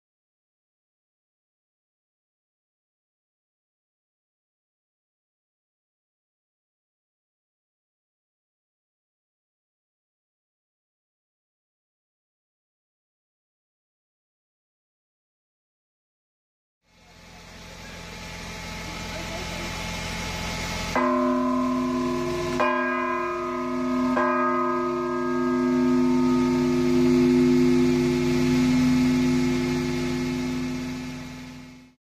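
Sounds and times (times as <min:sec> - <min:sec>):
large bell ringing: 0:18.2 - 0:32.0
rising noise: 0:25.2 - 0:31.9.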